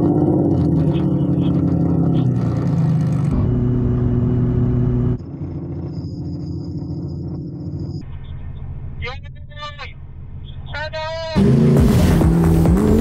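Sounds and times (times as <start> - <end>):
sports car engines rumbling: 0.0 - 13.0.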